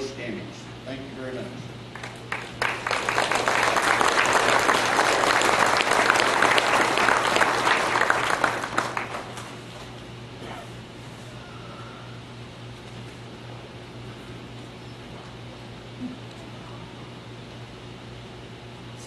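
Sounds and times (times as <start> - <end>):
audience applauding: 1.9 - 9.6.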